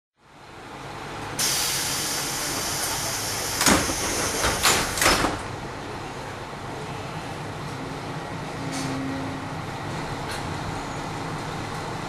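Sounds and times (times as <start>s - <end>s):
short sharp air bursts: 1.4s - 4.5s
loud compressed-air hiss: 1.4s - 5.0s.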